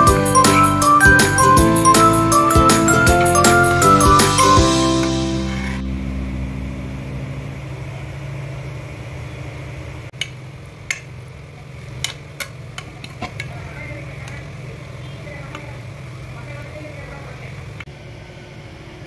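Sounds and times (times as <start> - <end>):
steady low hum: 5.2 - 10.1.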